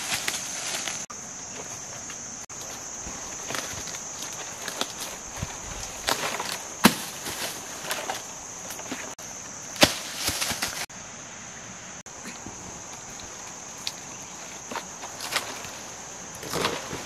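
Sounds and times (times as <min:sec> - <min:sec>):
leaves crackling and rustling: 0:00.0 - 0:11.0, 0:12.1 - 0:17.0
high insect buzz: 0:00.0 - 0:17.0
coconuts thudding on dry leaves: 0:02.6 - 0:10.9.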